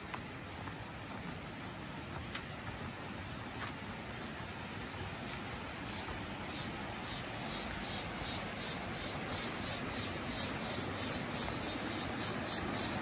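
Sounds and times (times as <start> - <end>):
small rocky stream rushing: 0.0 - 13.0
insects chirping: 5.8 - 13.0.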